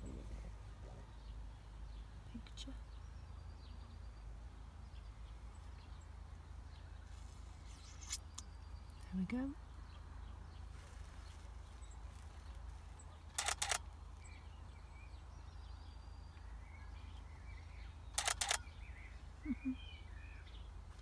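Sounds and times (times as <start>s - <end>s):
faint bird chirps: 4.9s - 21.0s
camera shutter bursts: 13.3s - 13.8s, 18.2s - 18.7s.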